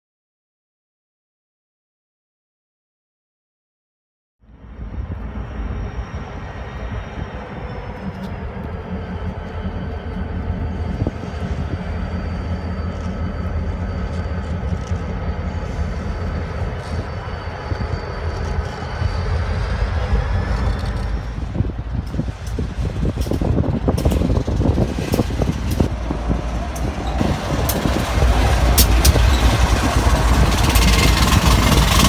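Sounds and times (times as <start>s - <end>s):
locomotive engine drone: 4.4s - 32.0s
faint high whine: 4.5s - 21.8s.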